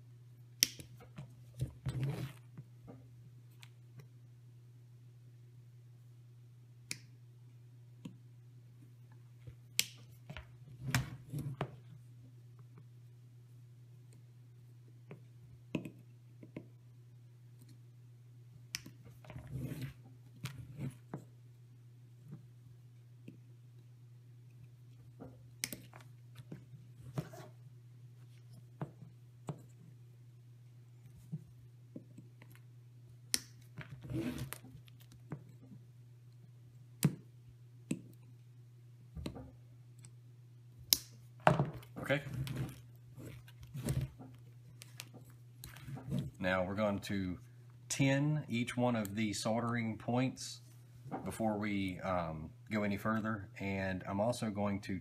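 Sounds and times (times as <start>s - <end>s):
steady low hum: 0.0s - 55.0s
wires rustling: 41.0s - 47.0s.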